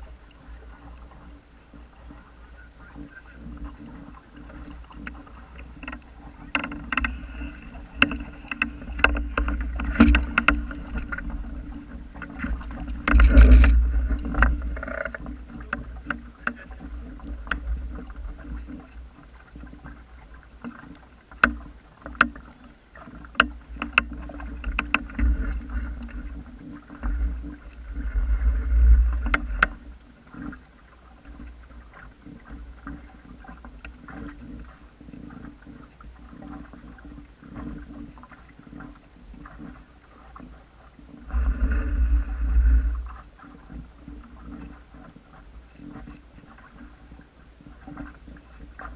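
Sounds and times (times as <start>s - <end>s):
water splashing at hull: 0.0s - 48.9s
sharp clicks and knocks: 5.8s - 11.5s, 12.2s - 17.7s, 20.6s - 22.4s, 23.3s - 26.1s.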